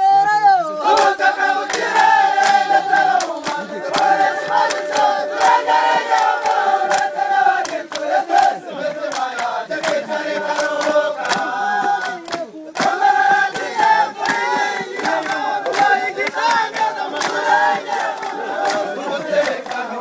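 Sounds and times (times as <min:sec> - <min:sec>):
group chanting: 0:00.6 - 0:20.0
hand claps: 0:00.8 - 0:20.0.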